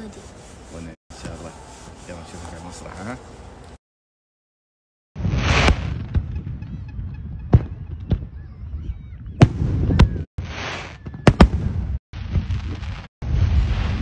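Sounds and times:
fireworks crackling: 10.4 - 14.0.

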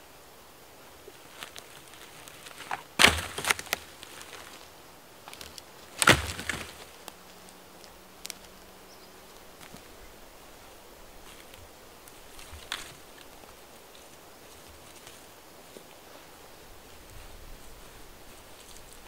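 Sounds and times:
heavy log thud with cracking: 2.3 - 4.6, 5.3 - 7.0.

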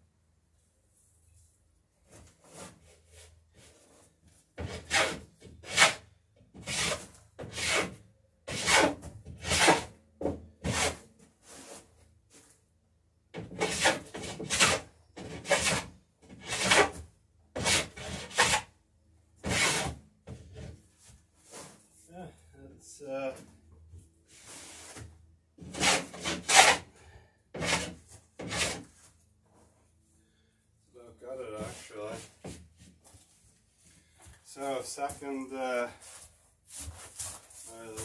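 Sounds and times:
hand plane rasping on wood: 4.6 - 6.0, 6.6 - 7.9, 8.5 - 9.9, 13.6 - 17.0, 17.6 - 18.7, 19.4 - 20.0, 25.6 - 26.9, 27.6 - 28.8.

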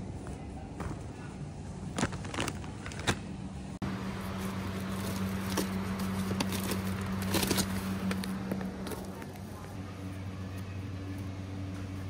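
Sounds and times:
low machine hum: 3.2 - 12.0.

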